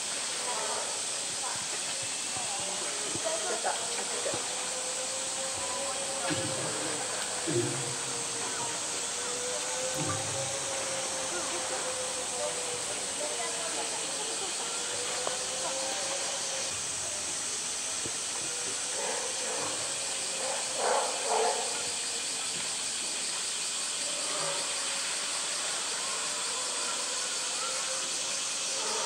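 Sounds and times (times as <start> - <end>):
steady hiss: 0.0 - 29.0
water splashing: 2.9 - 14.9.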